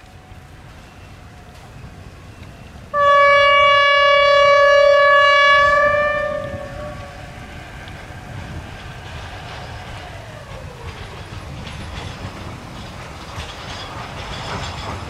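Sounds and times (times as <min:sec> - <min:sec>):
locomotive horn blast: 0:02.9 - 0:07.5.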